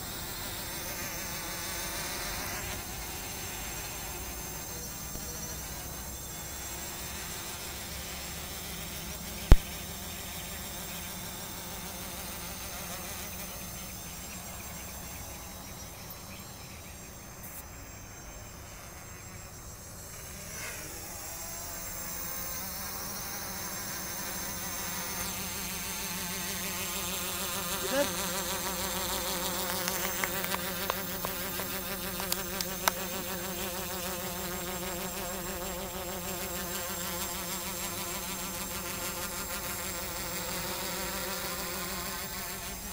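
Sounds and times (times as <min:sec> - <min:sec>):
faint ticks: 0:32.2 - 0:33.1.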